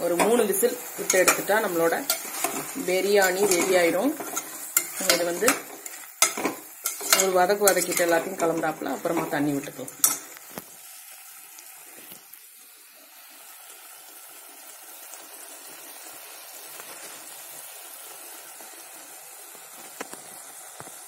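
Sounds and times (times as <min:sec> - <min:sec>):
food sizzling in pot: 0:00.0 - 0:21.0
ladle clinking against pot: 0:02.1 - 0:08.5.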